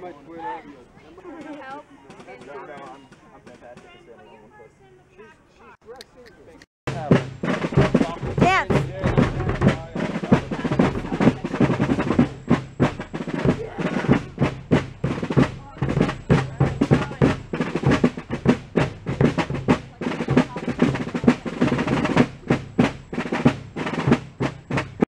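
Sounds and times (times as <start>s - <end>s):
snare drumming: 6.9s - 25.0s.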